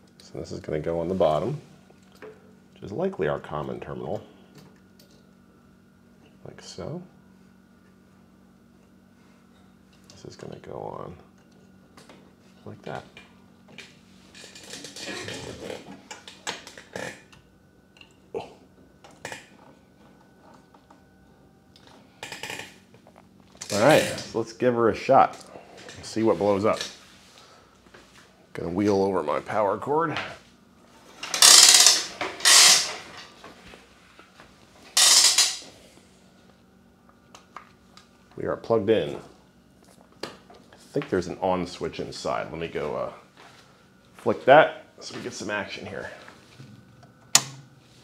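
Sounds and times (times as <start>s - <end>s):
power cord reel rattling and scraping: 31.1s - 33.4s.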